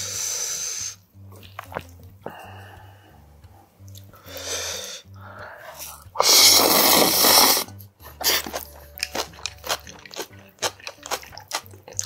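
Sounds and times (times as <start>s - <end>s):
wet chewing smacks: 1.3s - 2.0s, 8.1s - 12.0s
loud noodle slurp: 6.2s - 9.9s.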